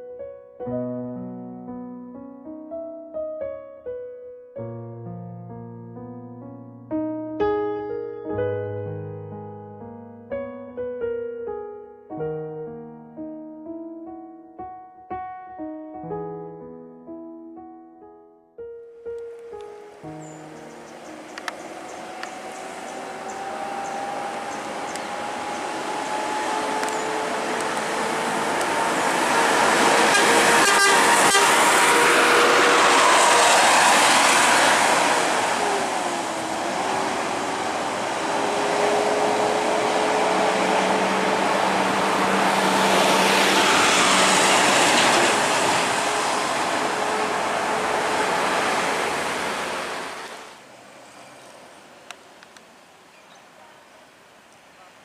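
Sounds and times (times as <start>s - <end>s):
bus diesel engine passing: 20.2s - 52.0s.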